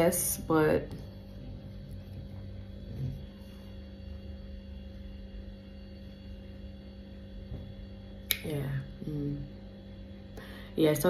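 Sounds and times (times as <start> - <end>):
faint uneven rumble: 0.0 - 11.0
low electrical hum: 0.0 - 11.0.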